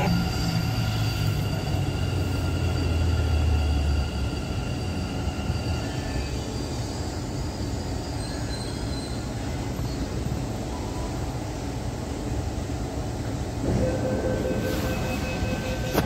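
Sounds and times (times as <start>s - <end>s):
high whining tones: 0.0s - 8.9s, 13.6s - 16.0s
train rumbling: 0.0s - 16.0s.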